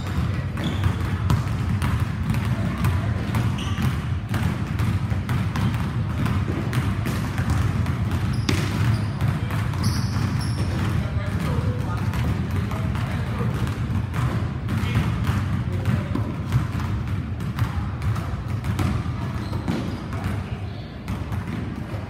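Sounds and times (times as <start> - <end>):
basketballs bouncing on wooden floor: 0.0 - 22.0.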